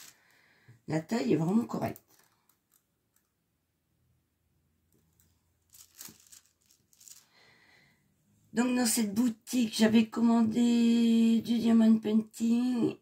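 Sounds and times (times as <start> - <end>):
plastic wrapping crinkling: 0.0 - 0.4, 1.4 - 3.3, 5.1 - 7.4.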